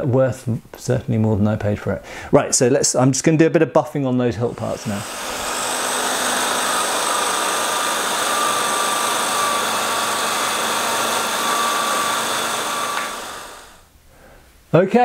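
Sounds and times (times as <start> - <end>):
electric drill with buffing wheel: 4.4 - 13.9.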